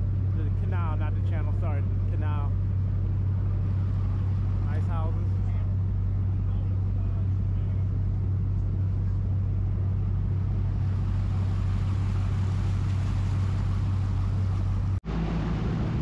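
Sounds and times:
boat engine droning: 0:00.0 - 0:16.0.

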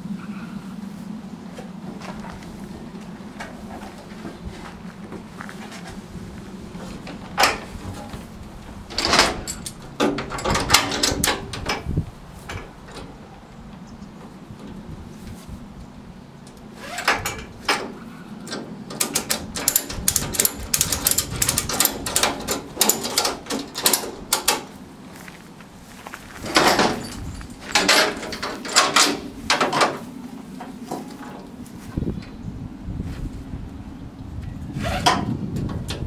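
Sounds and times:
ratchet strap clicking: 0:19.0 - 0:24.6.

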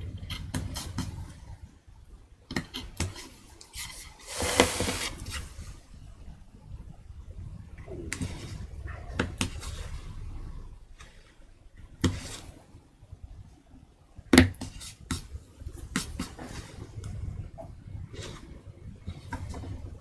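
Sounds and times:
low steady rumble: 0:05.4 - 0:12.0, 0:15.3 - 0:20.0.

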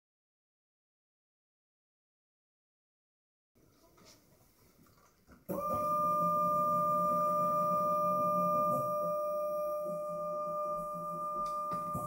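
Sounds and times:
rotary spindle whining: 0:05.5 - 0:12.0.

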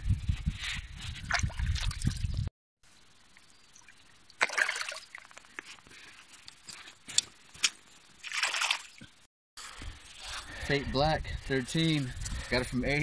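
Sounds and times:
water splashing in marsh: 0:01.2 - 0:02.3, 0:03.8 - 0:05.5, 0:08.2 - 0:09.0.

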